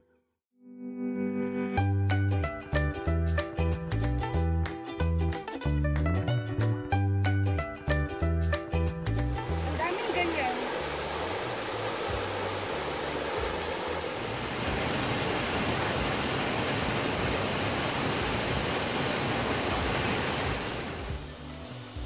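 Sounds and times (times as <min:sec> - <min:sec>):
waterfall rushing over boulders: 0:09.4 - 0:22.0.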